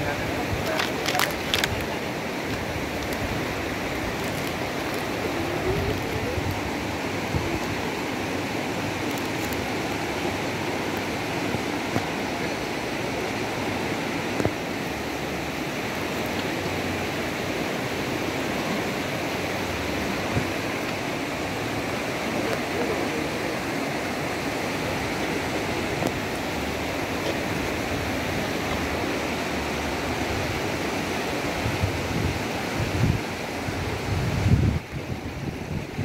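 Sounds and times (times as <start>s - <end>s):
river water rushing over rocks: 0.0s - 36.0s.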